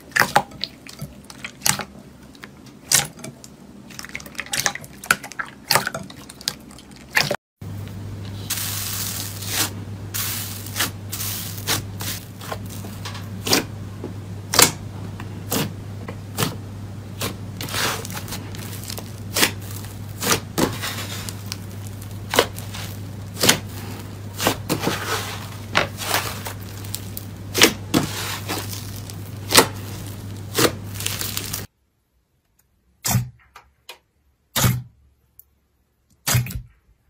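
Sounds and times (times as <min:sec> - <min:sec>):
steady low hum: 0:00.0 - 0:32.1.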